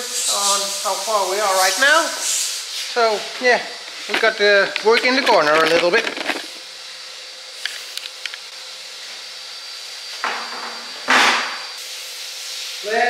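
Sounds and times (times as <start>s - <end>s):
faint workshop hum: 0.0s - 13.0s.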